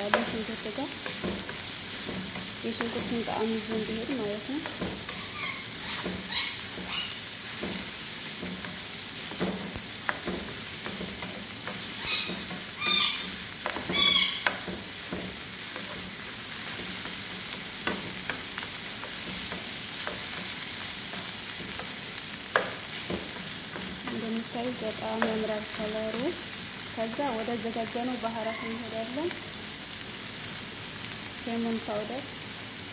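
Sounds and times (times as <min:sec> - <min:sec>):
wooden spatula scraping a pan: 0:00.0 - 0:22.0
food sizzling in oil: 0:00.0 - 0:32.9.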